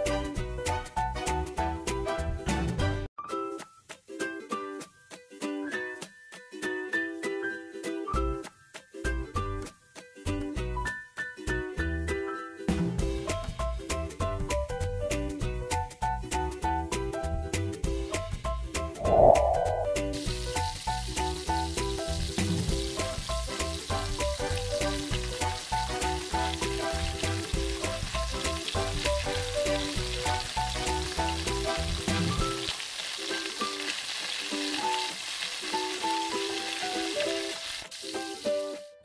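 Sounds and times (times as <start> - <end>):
food deep-frying in hot oil: 0.0 - 3.1, 12.7 - 18.8, 20.2 - 39.0
background music: 0.0 - 39.0.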